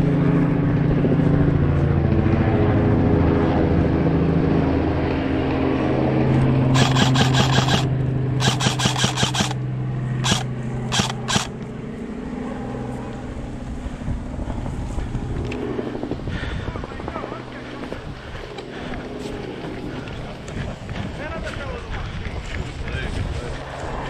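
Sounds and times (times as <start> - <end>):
steady engine drone: 0.0 - 24.0
airsoft gunfire: 6.8 - 9.6, 10.2 - 11.5.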